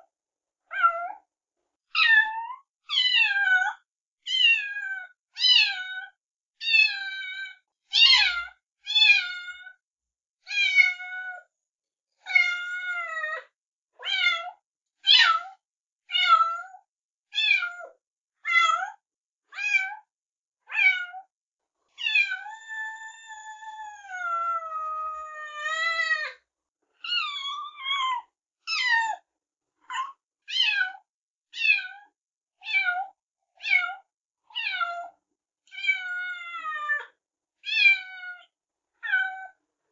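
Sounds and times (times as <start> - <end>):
cat meowing: 2.0 - 7.4, 10.5 - 11.4, 12.2 - 13.2, 17.4 - 17.9, 18.5 - 19.0, 20.7 - 21.3, 22.0 - 26.4, 27.0 - 29.2, 31.6 - 32.0, 32.6 - 34.0, 34.6 - 35.1, 35.7 - 37.0, 37.6 - 39.6.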